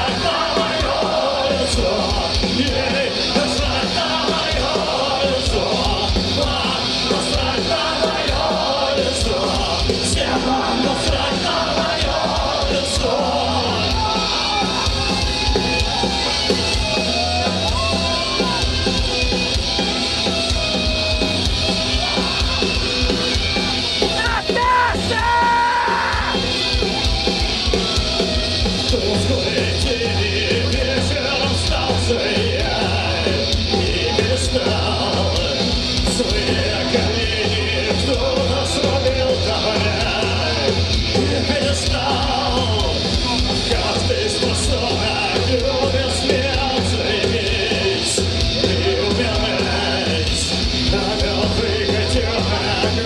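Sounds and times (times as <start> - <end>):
bass guitar: 0.0 - 53.0
drums: 0.0 - 53.0
electric guitars: 0.0 - 53.0
shouted vocal: 24.1 - 26.4.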